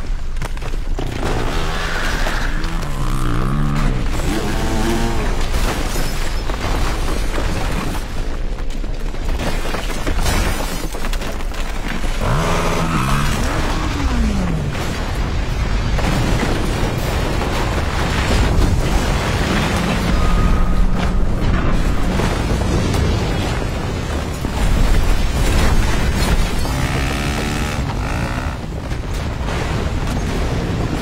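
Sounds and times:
deep rumble: 12.0s - 29.9s
dirt bike engine passing: 12.2s - 14.8s, 26.2s - 28.7s.

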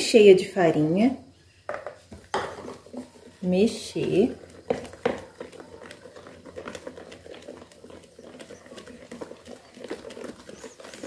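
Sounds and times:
stirring thick batter in bowl: 1.8s - 11.0s.

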